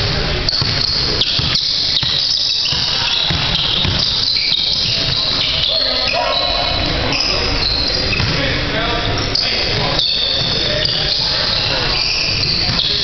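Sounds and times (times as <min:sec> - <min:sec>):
sneaker squeaks on gym floor: 0:00.4 - 0:13.0
basketball dribbling thumps: 0:00.5 - 0:05.5, 0:08.2 - 0:08.4.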